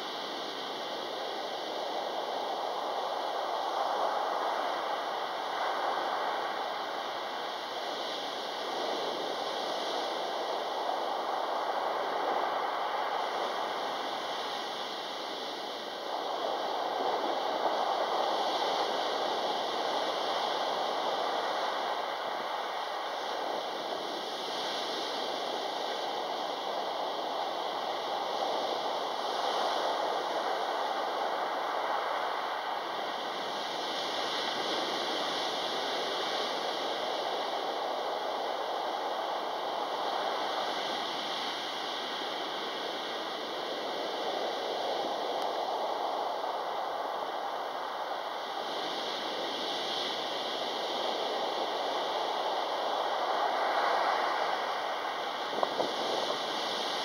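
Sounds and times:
sea waves breaking on shore: 0.1 - 57.0.

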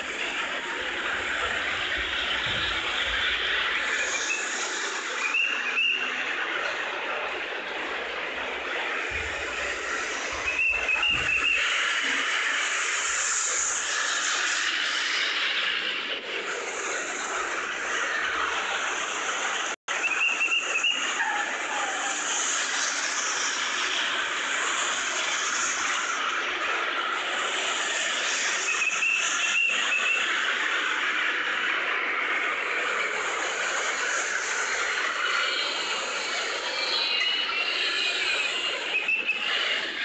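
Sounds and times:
traffic and tyre noise: 0.0 - 40.0
high warbling siren tone: 8.9 - 12.2.

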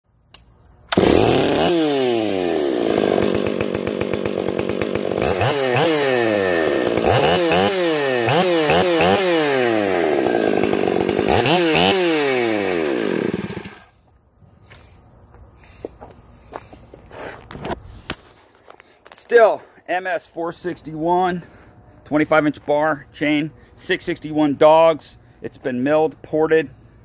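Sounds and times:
chainsaw revving: 0.9 - 13.9.

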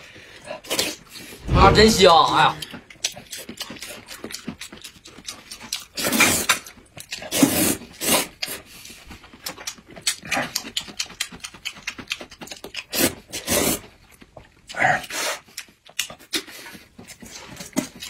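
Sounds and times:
wet mouth chewing clicks: 2.6 - 7.6, 9.4 - 13.3, 14.1 - 16.5
loud noodle slurps: 5.9 - 6.6, 7.2 - 8.6, 12.8 - 13.9.

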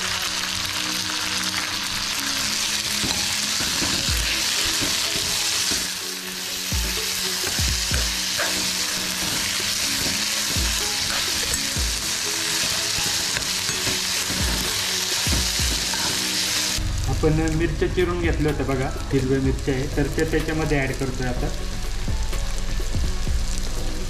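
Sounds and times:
vegetables sizzling in hot oil: 0.0 - 24.0
spoon stirring and scraping pan: 6.7 - 16.7.

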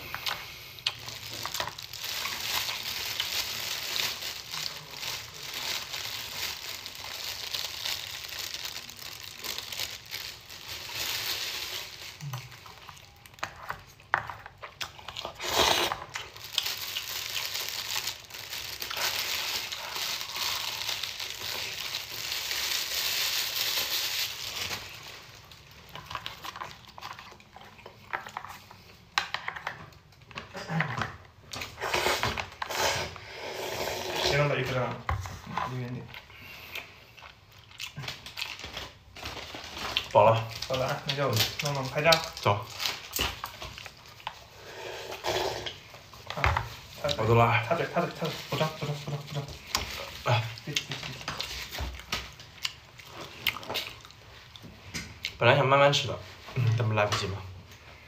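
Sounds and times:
noodles slurped and chewed: 0.0 - 5.9, 11.7 - 22.1, 47.9 - 55.4
plastic bag crinkling: 0.0 - 28.9, 34.3 - 44.6, 45.7 - 54.6.

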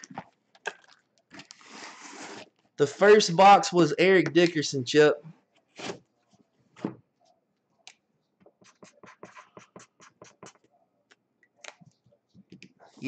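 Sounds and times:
marker pen scratching on cardboard: 8.4 - 10.7.

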